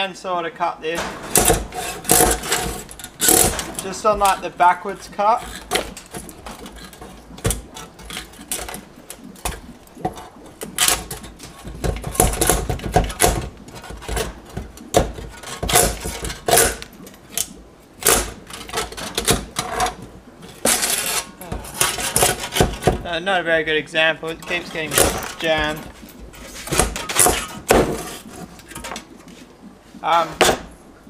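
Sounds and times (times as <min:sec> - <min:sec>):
handsaw cutting plastic: 0:01.3 - 0:04.4, 0:05.2 - 0:08.8, 0:12.1 - 0:16.9, 0:20.6 - 0:23.0.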